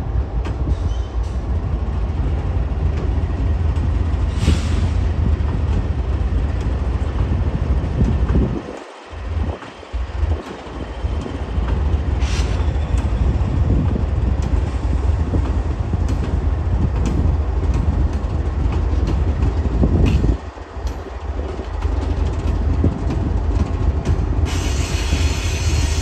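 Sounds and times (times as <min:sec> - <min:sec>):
freight train low rumble: 0:00.0 - 0:26.0
wheels clicking over rail joints: 0:05.4 - 0:24.8.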